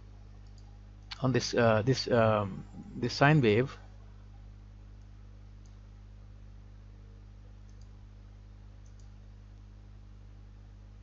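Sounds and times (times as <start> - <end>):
low electrical hum: 0.0 - 11.0
computer mouse clicks: 0.4 - 1.2, 5.0 - 5.8, 7.6 - 8.0, 8.8 - 9.2.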